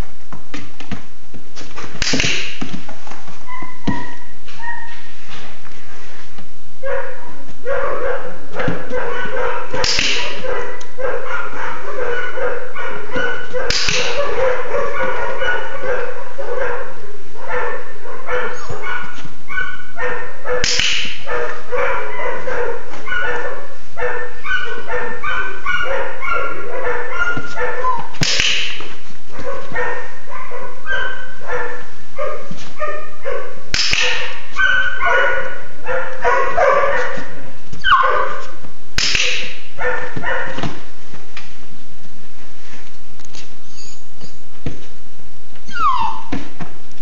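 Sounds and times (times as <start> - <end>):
puppies yipping and barking: 3.5 - 5.0, 18.3 - 20.2, 23.0 - 28.6, 29.8 - 31.4, 34.0 - 37.1, 37.8 - 38.4, 45.7 - 46.4.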